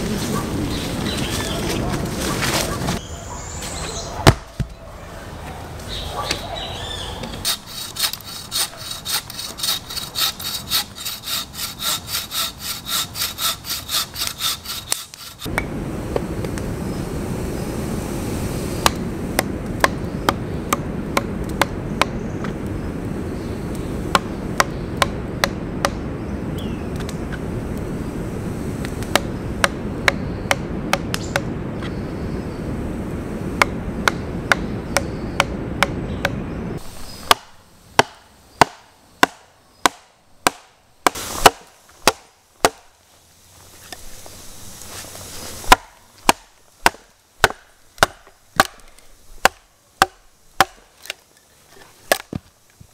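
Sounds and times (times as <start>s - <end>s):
saw cutting through log: 7.4s - 15.5s
steady hiss: 7.4s - 25.0s, 26.0s - 35.0s, 36.4s - 52.9s.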